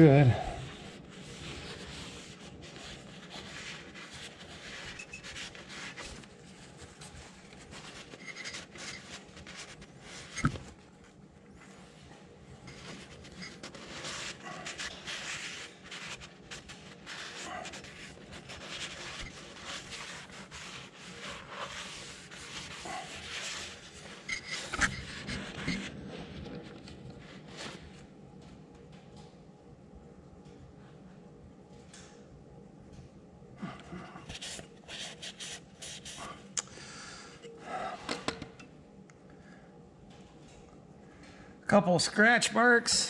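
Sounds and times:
rag rubbing inside cylinder: 0:00.0 - 0:10.8, 0:12.7 - 0:27.7.

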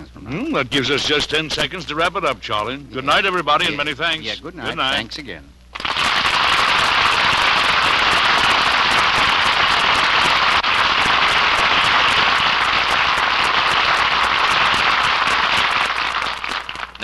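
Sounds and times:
audience applauding: 0:05.7 - 0:17.0.

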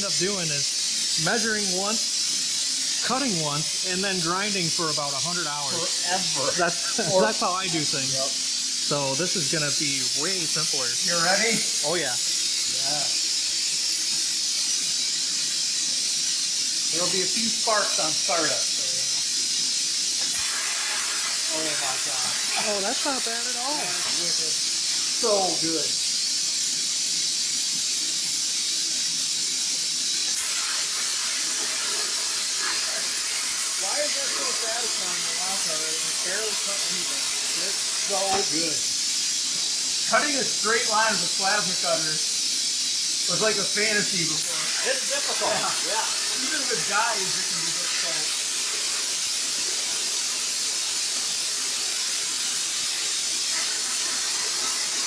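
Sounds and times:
plasma arc cutting metal: 0:00.0 - 0:55.0
plasma cutter hissing: 0:00.0 - 0:55.0.

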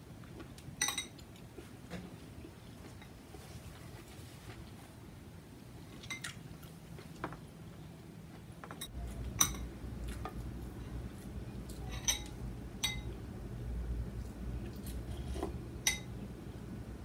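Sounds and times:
low steady hum: 0:00.0 - 0:17.0
chopsticks clinking ceramic bowl: 0:11.8 - 0:13.2, 0:15.8 - 0:16.1.

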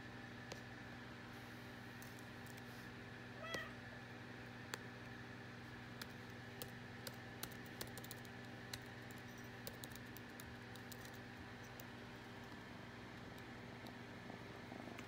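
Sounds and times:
laptop keyboard typing: 0:05.9 - 0:14.0.

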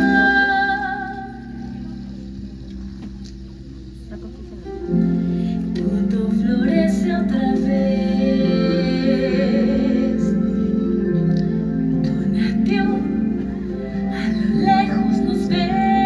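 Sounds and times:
woman singing with vibrato: 0:00.0 - 0:01.7, 0:05.6 - 0:11.1, 0:11.9 - 0:16.0
music: 0:00.0 - 0:16.0.

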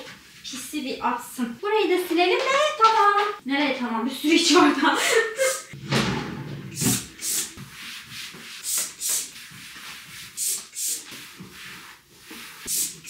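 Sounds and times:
cloth rubbing wood: 0:06.3 - 0:13.0.

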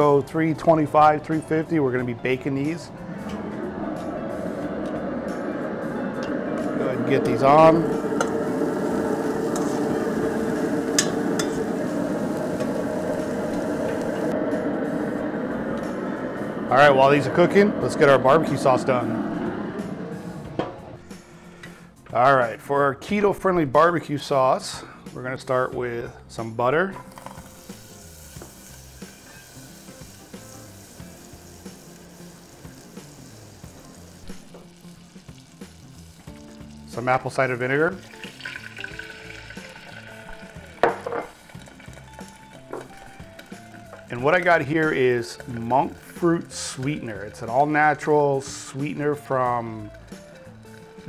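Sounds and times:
grill fan humming: 0:00.0 - 0:21.5, 0:27.5 - 0:51.0
butter sizzling in a saucepan: 0:07.7 - 0:14.3, 0:27.1 - 0:51.0.

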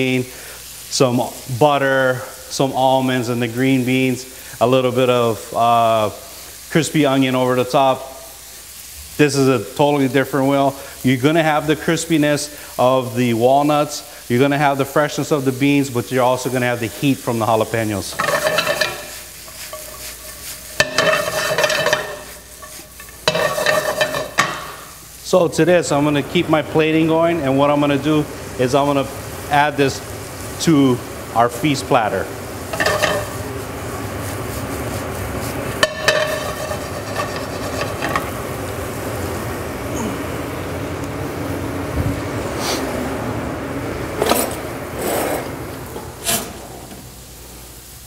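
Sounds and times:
vegetables sizzling in a pan: 0:00.0 - 0:48.0
metal pan clanking: 0:18.1 - 0:24.9, 0:32.7 - 0:33.5, 0:35.7 - 0:38.4.

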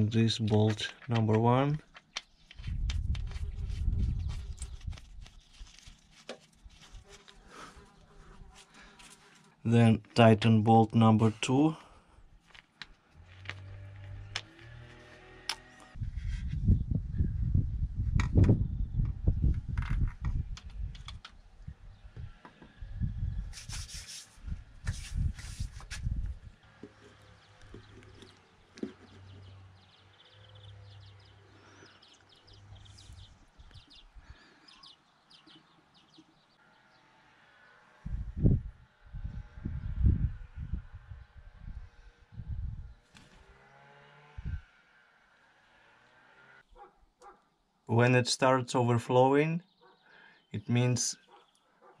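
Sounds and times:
plastic hose rubbing and scraping: 0:00.0 - 0:09.6, 0:23.5 - 0:29.7
scratchy rustles: 0:01.8 - 0:09.6, 0:23.5 - 0:29.6
low rumbling microphone noise: 0:16.0 - 0:21.0, 0:38.1 - 0:43.0.

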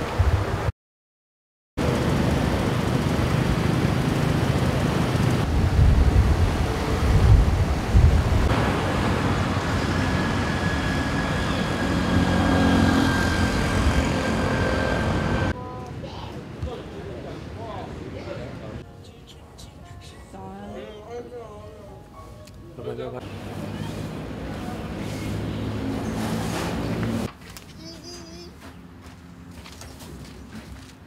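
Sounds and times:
vehicles running along road: 0:01.8 - 0:15.6, 0:23.1 - 0:31.0.

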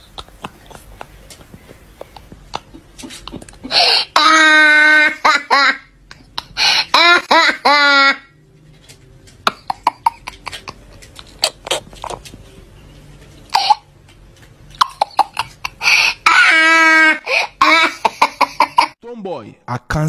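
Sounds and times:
boy laughing: 0:00.0 - 0:08.3, 0:09.4 - 0:12.2, 0:14.8 - 0:19.0.

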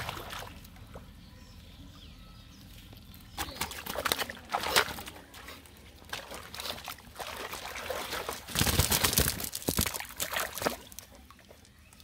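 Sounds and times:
splashing and slapping: 0:00.0 - 0:00.7, 0:03.4 - 0:11.6
water trickling and splashing: 0:00.0 - 0:01.1, 0:02.7 - 0:12.0
wet net mesh rustling: 0:08.2 - 0:11.1.

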